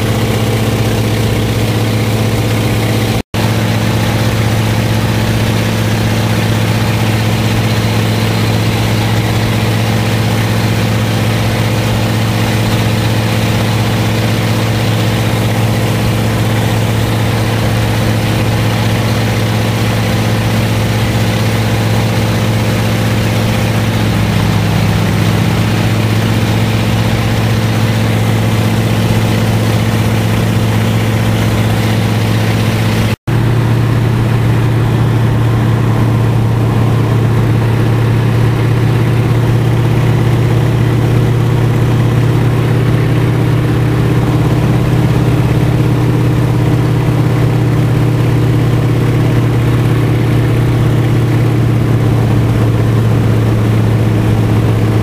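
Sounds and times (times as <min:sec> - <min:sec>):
plane engine droning: 0:00.0 - 0:55.0.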